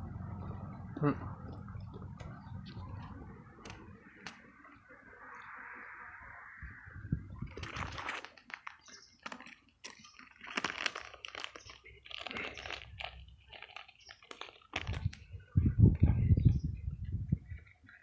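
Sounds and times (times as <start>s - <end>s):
low thumps and rumble: 0.0s - 3.6s
chewing crunchy ice cream: 7.5s - 15.5s.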